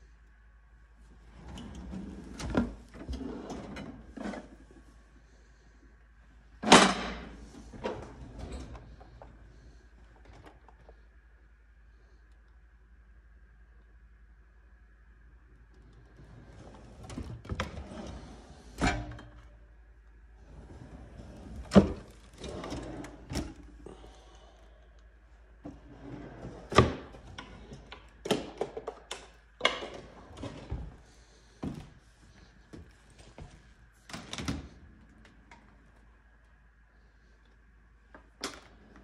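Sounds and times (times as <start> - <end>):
drawers rattling and sliding: 1.3 - 4.7, 16.2 - 19.2, 20.5 - 23.7, 25.7 - 28.9, 29.6 - 31.0.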